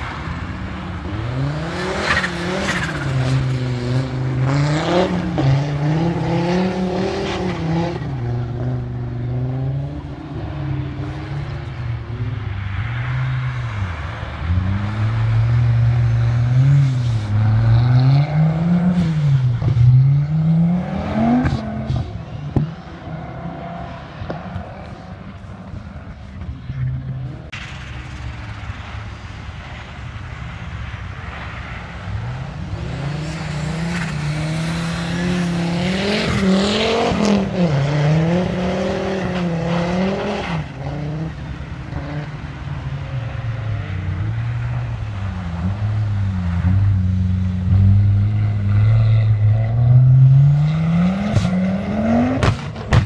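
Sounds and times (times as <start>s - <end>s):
race car engine revving: 0.0s - 27.9s, 32.3s - 53.0s
sharp cracks: 52.3s - 53.0s.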